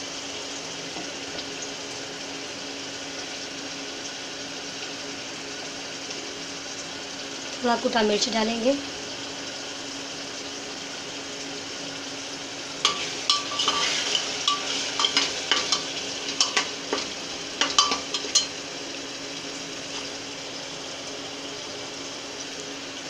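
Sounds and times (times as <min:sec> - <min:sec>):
masala sizzling in oil: 0:00.0 - 0:23.0
metal spoon scraping a pot: 0:12.8 - 0:18.6.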